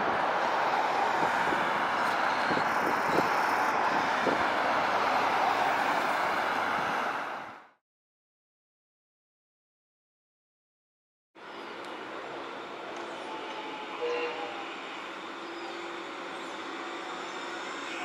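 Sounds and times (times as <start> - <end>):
city street traffic: 0.0 - 7.8, 11.4 - 18.0
streetcar: 0.0 - 7.8, 11.4 - 18.0.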